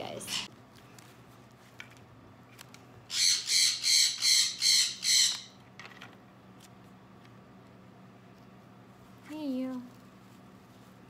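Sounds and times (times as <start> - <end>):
parrot screeching: 0.2 - 0.5, 3.1 - 5.6.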